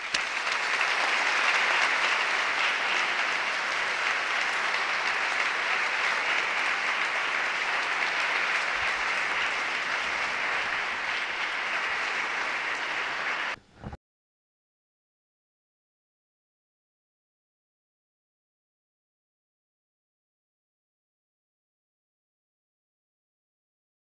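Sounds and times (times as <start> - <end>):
audience applauding: 0.0 - 13.6.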